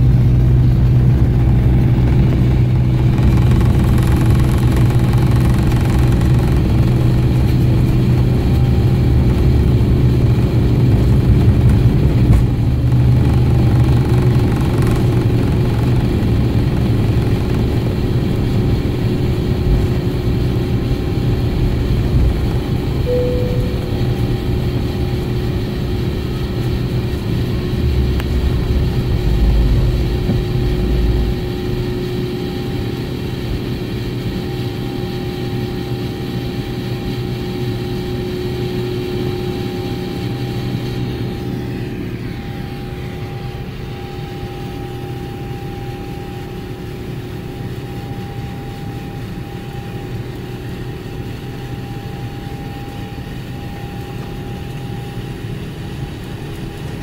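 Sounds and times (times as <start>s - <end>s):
heavy low rumble: 0.0s - 33.7s
jet engines roaring: 0.0s - 47.8s
jet engine whine: 0.0s - 57.0s.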